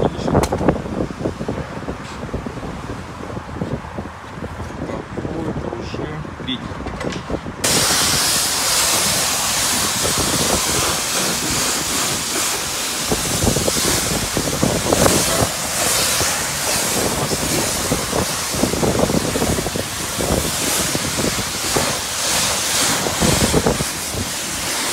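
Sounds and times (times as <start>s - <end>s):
high-pressure wand spraying: 7.6s - 24.9s.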